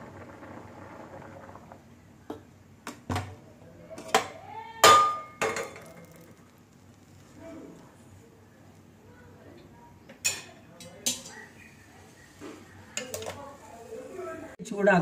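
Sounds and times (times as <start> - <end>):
steel pots knocking on stove: 4.1 - 5.9.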